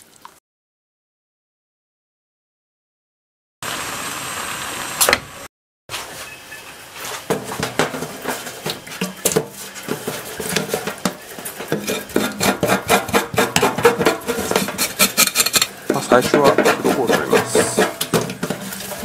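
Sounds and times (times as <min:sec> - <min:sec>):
knife scraping fish scales: 0:11.7 - 0:15.7.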